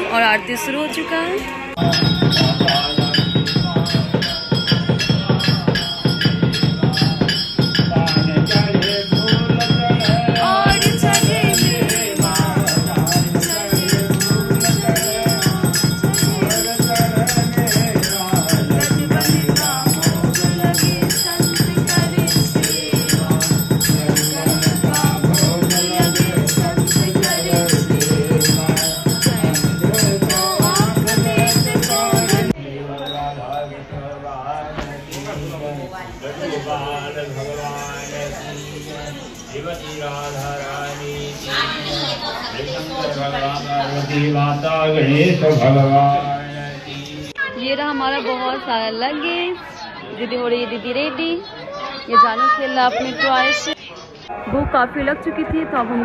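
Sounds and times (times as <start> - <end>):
voices singing a hymn: 1.7 - 51.2
jangling bells: 1.8 - 33.8
rattling percussion: 1.8 - 33.8.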